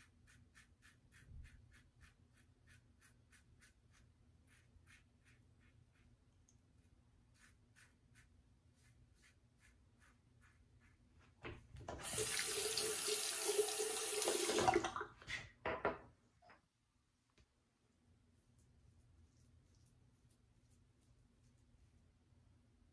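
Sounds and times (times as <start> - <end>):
tap running into sink: 11.8 - 15.0.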